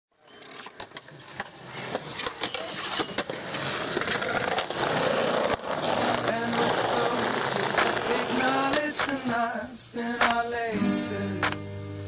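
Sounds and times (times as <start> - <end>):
skateboard wheels rolling on concrete: 0.1 - 9.7
skateboard clicks and knocks: 0.2 - 9.4.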